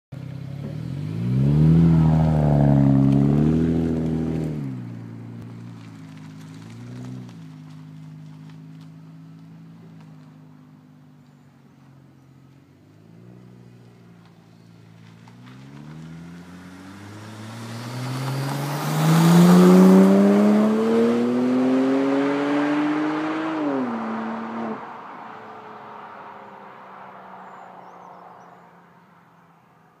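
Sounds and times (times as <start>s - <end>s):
car engine accelerating past: 0.4s - 5.0s, 13.0s - 29.1s.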